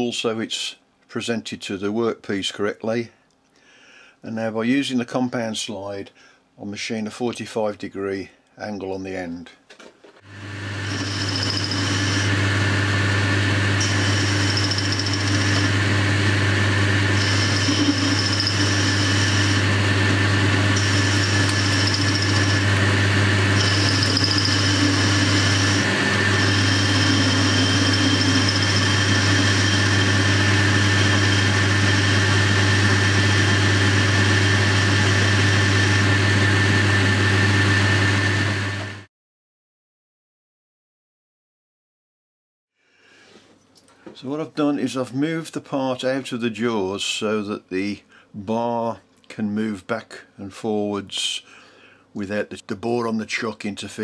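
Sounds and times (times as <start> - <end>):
metal lathe humming: 10.3 - 39.0
high hiss of cutting tool: 17.1 - 19.6.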